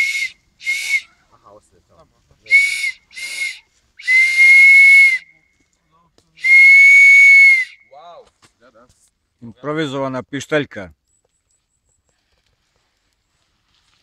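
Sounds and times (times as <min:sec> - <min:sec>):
whistle blown through cupped hands: 0:00.0 - 0:01.2, 0:02.5 - 0:05.7, 0:06.4 - 0:08.0.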